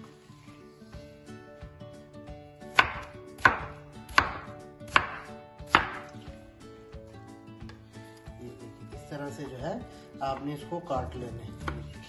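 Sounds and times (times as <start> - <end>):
knife chopping onto wooden board: 2.7 - 6.2, 11.6 - 12.0.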